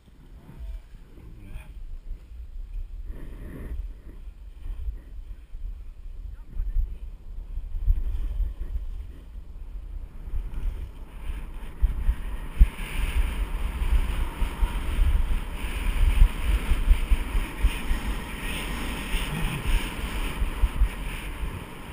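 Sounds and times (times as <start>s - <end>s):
wind buffeting microphone: 0.0s - 21.9s
skis hissing over packed snow: 7.5s - 21.9s.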